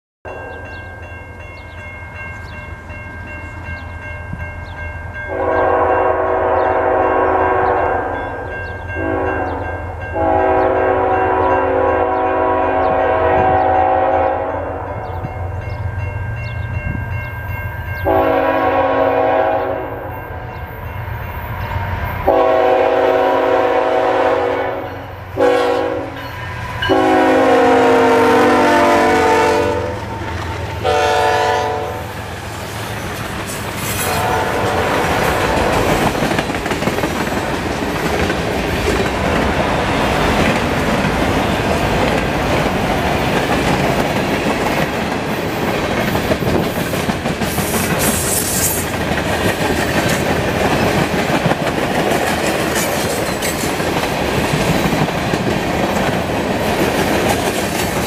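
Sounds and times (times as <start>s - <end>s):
diesel locomotives rumbling: 0.3s - 58.0s
train air horn blasts: 5.3s - 15.2s, 18.0s - 20.5s, 22.2s - 32.3s, 33.8s - 36.1s.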